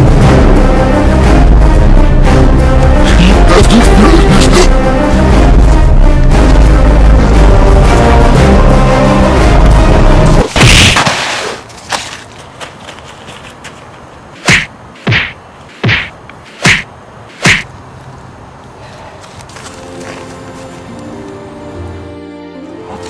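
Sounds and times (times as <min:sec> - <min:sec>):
background music: 0:00.0 - 0:10.5, 0:19.8 - 0:23.0
sharp whacks: 0:10.4 - 0:11.6, 0:14.4 - 0:17.7.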